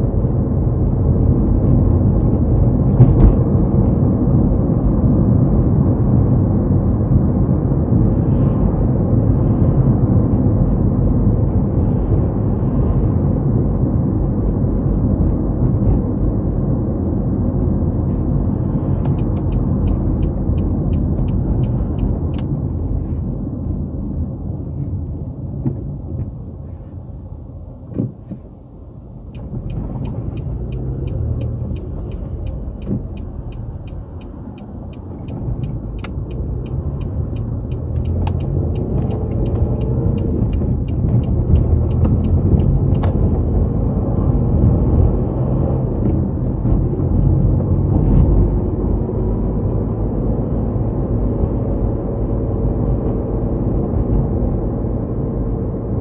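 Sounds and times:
car cabin rumble: 0:00.0 - 0:08.1, 0:09.1 - 0:49.8
turn signal ticking: 0:18.6 - 0:22.8, 0:29.3 - 0:48.8.

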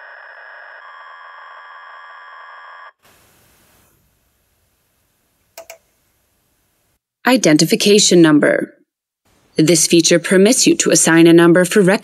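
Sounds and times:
faint hiss: 0:03.0 - 0:07.0
short clicks: 0:05.6 - 0:05.8.

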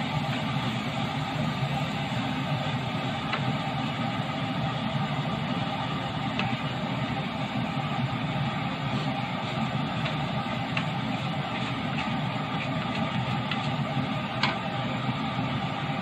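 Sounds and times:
spatula stirring rice in wok: 0:00.0 - 0:16.0
steady hum and hiss: 0:00.0 - 0:16.0
spatula tapping wok: 0:03.2 - 0:03.6, 0:06.3 - 0:06.6, 0:09.8 - 0:14.7.

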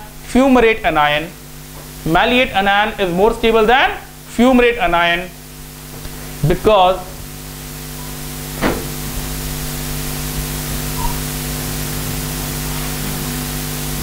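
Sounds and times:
low electrical hum: 0:00.0 - 0:14.0
steady hiss: 0:00.0 - 0:14.0.

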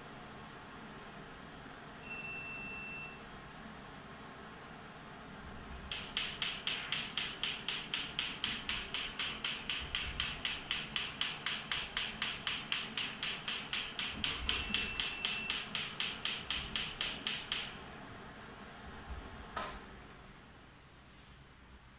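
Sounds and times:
machine pulsing sharp clicks: 0:05.8 - 0:17.9
switch click: 0:05.9 - 0:17.8.

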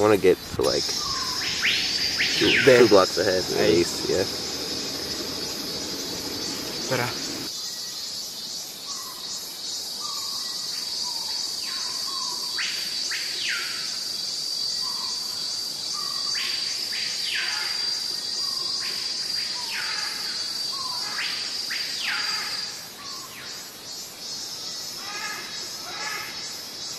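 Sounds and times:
high-pitched insect chorus: 0:00.0 - 0:26.9
bird short falling calls: 0:00.7 - 0:07.5.

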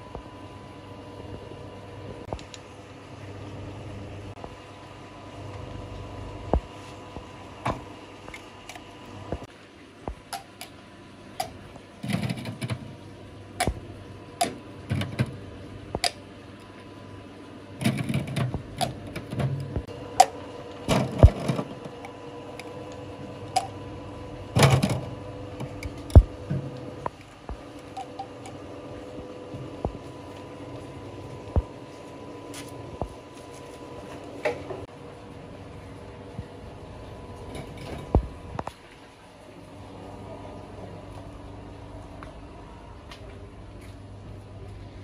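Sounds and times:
steady machine hum: 0:00.0 - 0:45.0
plastic preforms clattering: 0:11.4 - 0:13.0, 0:17.8 - 0:22.7, 0:24.6 - 0:26.7.

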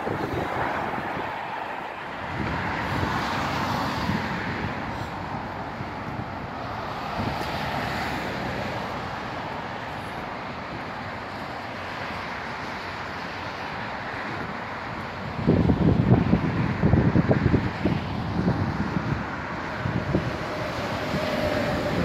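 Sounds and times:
passing cars: 0:00.0 - 0:22.0
wind on microphone: 0:00.0 - 0:22.0.

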